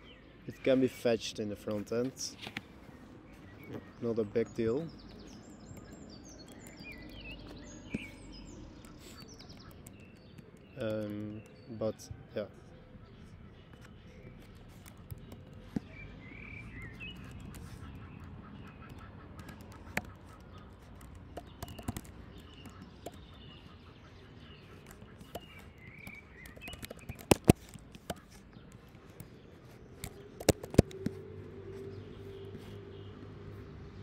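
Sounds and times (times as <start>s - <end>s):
birds chirping: 0.0s - 34.0s
sharp clicks: 5.3s - 8.1s, 8.8s - 11.8s, 13.8s - 15.9s, 16.9s - 23.4s, 24.8s - 31.2s.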